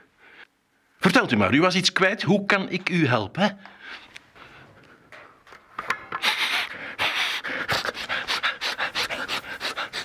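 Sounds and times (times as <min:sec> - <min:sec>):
man sniffing rapidly: 0:06.2 - 0:10.0.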